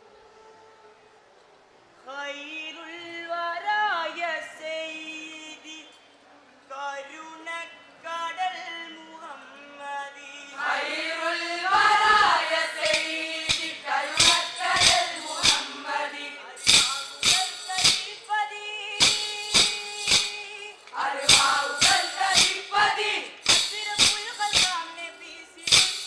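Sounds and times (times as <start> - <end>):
people singing: 10.4 - 26.0
wooden sticks clacking: 12.3 - 16.0, 16.6 - 18.4, 19.0 - 24.9, 25.6 - 26.0.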